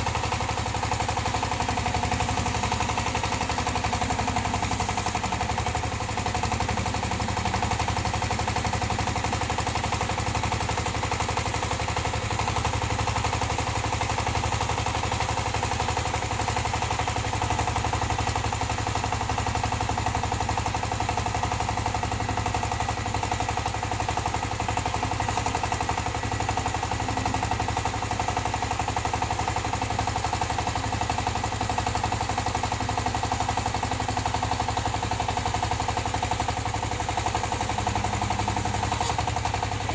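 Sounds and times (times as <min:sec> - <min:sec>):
small diesel engine running: 0:00.0 - 0:39.9
hydraulic backhoe arm working: 0:00.1 - 0:11.2, 0:20.7 - 0:31.2, 0:33.2 - 0:39.9.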